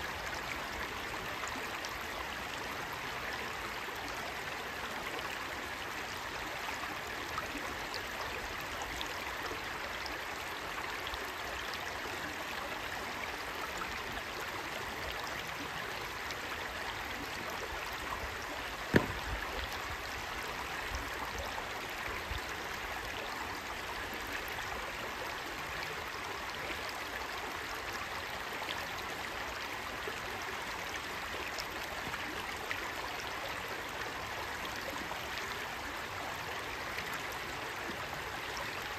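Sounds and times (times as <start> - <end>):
stream babbling over stones: 0.0 - 38.9
sharp knock: 18.9 - 19.3.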